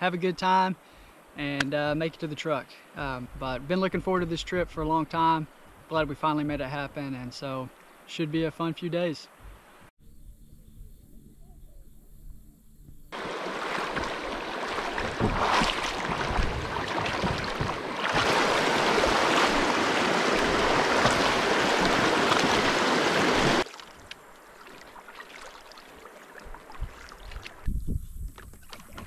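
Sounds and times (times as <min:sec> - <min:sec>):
river water rushing: 0:13.2 - 0:27.6.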